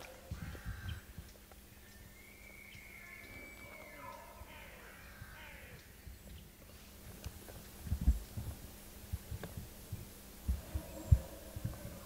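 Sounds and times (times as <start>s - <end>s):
dull low thumps: 7.5s - 12.0s.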